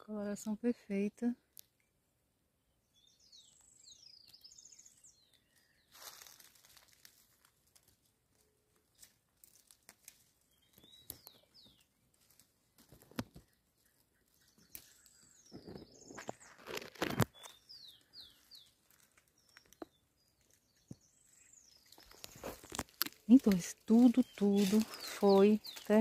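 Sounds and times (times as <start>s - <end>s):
bird chirps: 2.7s - 6.3s, 10.5s - 12.0s, 13.4s - 22.6s, 23.2s - 26.0s
dry twigs and leaves rustling: 3.5s - 26.0s.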